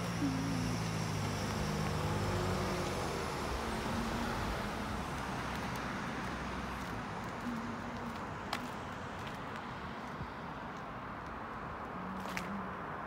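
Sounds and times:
engine hum: 0.0s - 10.3s
cars driving past: 0.0s - 13.0s.

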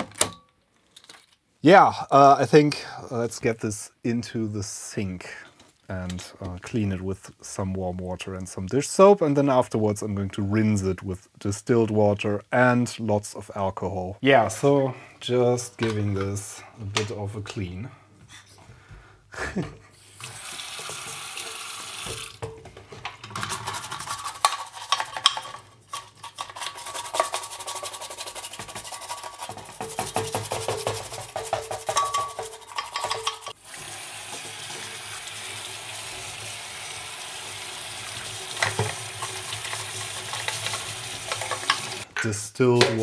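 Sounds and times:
tap water running: 19.9s - 25.4s, 26.6s - 42.1s
wet rubbing and splashing: 23.3s - 33.5s.

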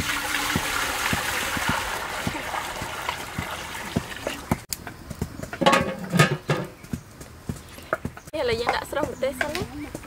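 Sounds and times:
water pouring into a metal pot: 0.0s - 4.4s
metal lid clanking on pot: 5.6s - 6.7s.

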